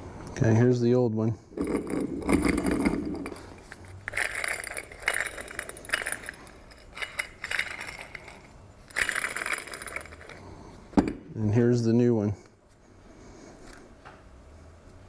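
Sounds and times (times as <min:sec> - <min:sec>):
worn bearing grinding: 0:01.5 - 0:10.6
metal arm clinking: 0:01.6 - 0:11.2.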